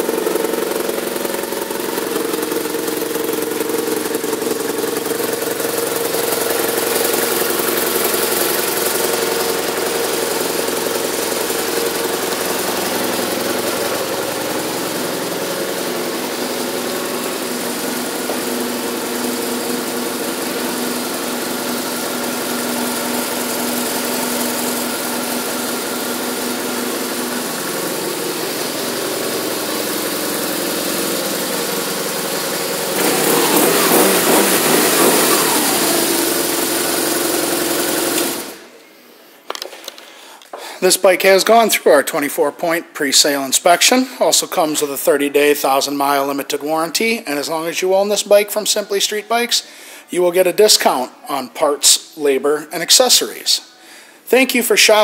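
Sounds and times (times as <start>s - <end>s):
motorcycle engine idling: 0.0s - 38.7s.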